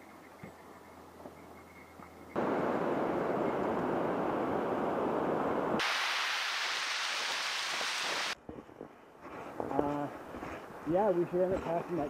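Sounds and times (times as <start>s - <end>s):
wind and sea noise: 2.3s - 12.0s.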